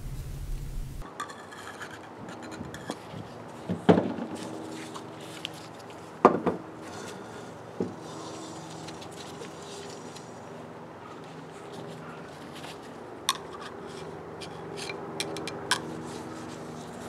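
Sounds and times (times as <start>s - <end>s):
metal rubbing and clinking: 1.0s - 3.0s, 11.8s - 17.0s.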